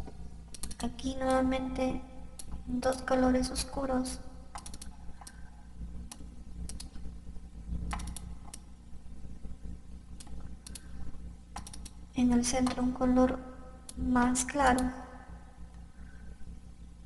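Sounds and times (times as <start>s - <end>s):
faint low hum: 0.0s - 17.0s
computer mouse clicking: 0.5s - 0.9s, 4.5s - 5.5s, 6.1s - 7.1s, 7.8s - 8.7s, 10.2s - 10.9s, 11.5s - 12.0s.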